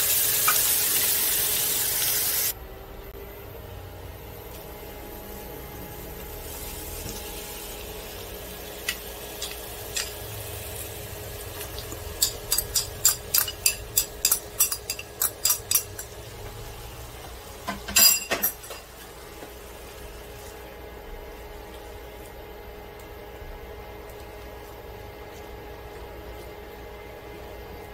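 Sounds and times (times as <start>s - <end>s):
food sizzling in frying pan: 0.0s - 2.5s, 6.3s - 15.1s
utensil clattering on dish: 12.2s - 16.1s, 17.7s - 18.9s.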